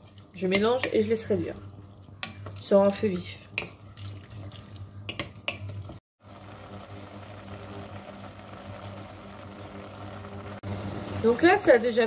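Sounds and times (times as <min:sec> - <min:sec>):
wooden spoon stirring in saucepan: 0:00.0 - 0:06.0
liquid boiling and bubbling: 0:00.0 - 0:12.0.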